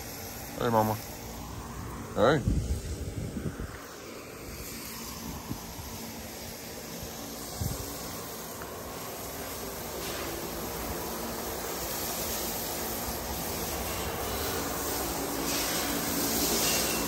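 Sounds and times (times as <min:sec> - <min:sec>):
hose spraying water on ground: 0:00.0 - 0:17.0.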